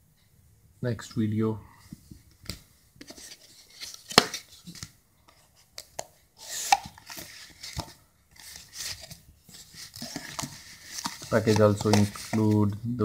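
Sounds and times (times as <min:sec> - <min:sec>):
card and paper rustling: 0:03.0 - 0:12.8.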